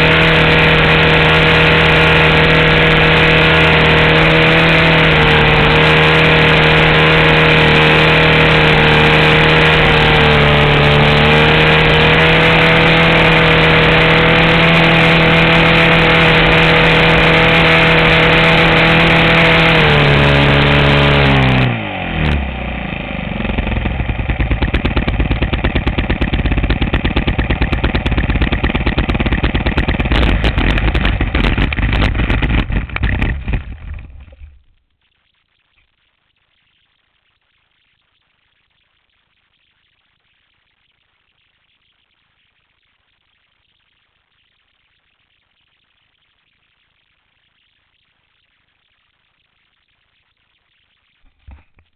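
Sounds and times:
model airplane motor: 0:00.0 - 0:34.7.

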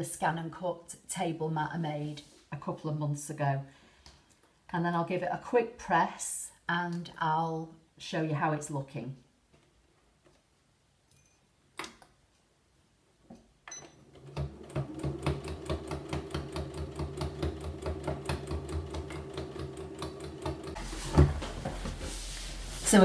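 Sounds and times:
sewing machine stitching: 0:14.0 - 0:20.9.

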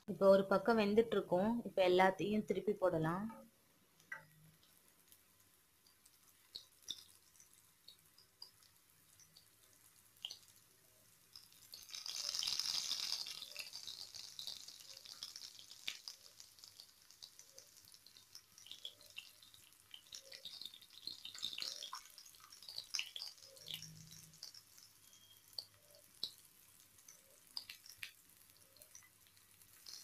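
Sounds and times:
banana slices sizzling in oil: 0:00.0 - 0:30.0
spatula clicking against pan: 0:27.0 - 0:28.2.

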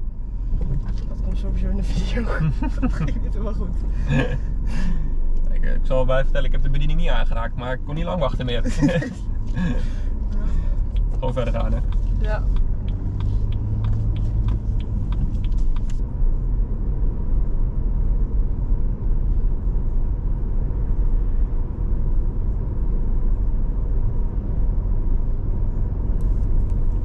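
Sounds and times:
car engine and tyre rumble: 0:00.0 - 0:27.0
light ticks: 0:10.3 - 0:16.0.

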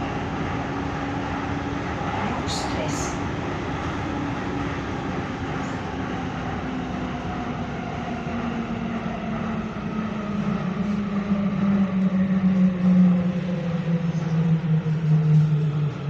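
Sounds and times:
train rumbling through tunnel: 0:00.0 - 0:16.0.

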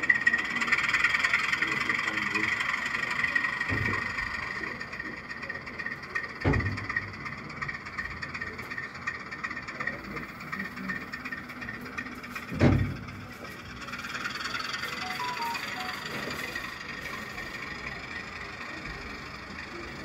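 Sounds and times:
model train running: 0:00.0 - 0:20.0
faint high tone: 0:15.0 - 0:16.6.

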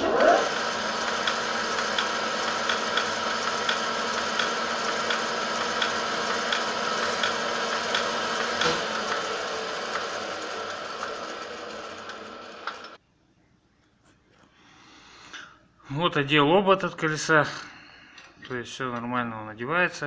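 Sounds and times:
lathe running: 0:00.0 - 0:13.0.

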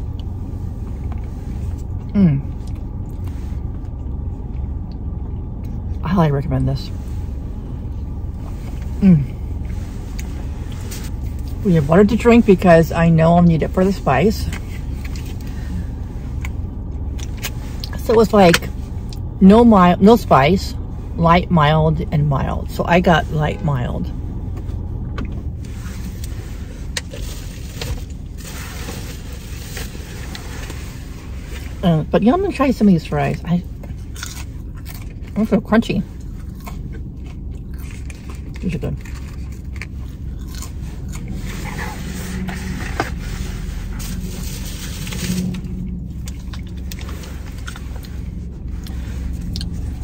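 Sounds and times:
low car cabin rumble: 0:00.0 - 0:50.0
rustling in a car seat: 0:06.9 - 0:19.1, 0:22.4 - 0:32.6, 0:37.8 - 0:50.0.

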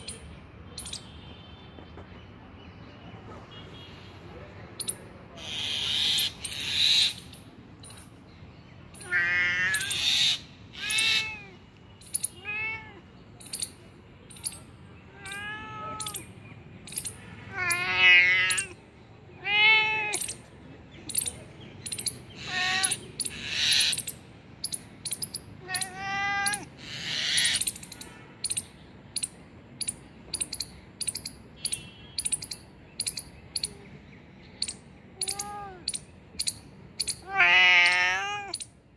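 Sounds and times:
cat meowing: 0:09.0 - 0:11.6, 0:12.3 - 0:13.1, 0:15.1 - 0:16.3, 0:17.5 - 0:18.8, 0:19.4 - 0:20.4, 0:22.4 - 0:23.0, 0:25.6 - 0:27.5, 0:35.2 - 0:36.0, 0:37.0 - 0:38.7.

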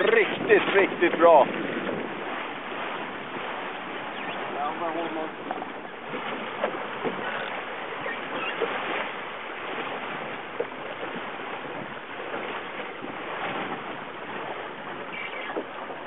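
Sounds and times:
water splashing along a boat hull: 0:00.0 - 0:16.0
wind on microphone: 0:00.0 - 0:16.0.

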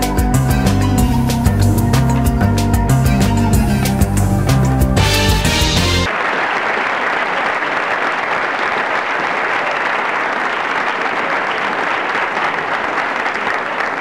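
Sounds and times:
crowd applauding: 0:05.2 - 0:14.0.

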